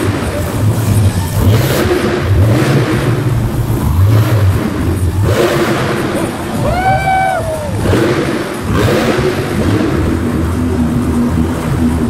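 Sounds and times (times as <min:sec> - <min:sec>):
monster truck engine revving: 0:00.0 - 0:12.0.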